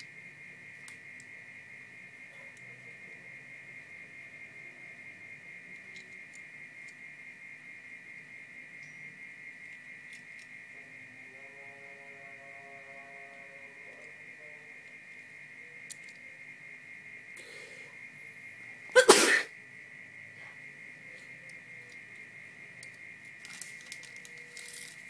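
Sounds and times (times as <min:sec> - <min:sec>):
high-pitched whine: 0:00.0 - 0:25.0
toy car clicks: 0:15.8 - 0:16.2, 0:22.8 - 0:25.0.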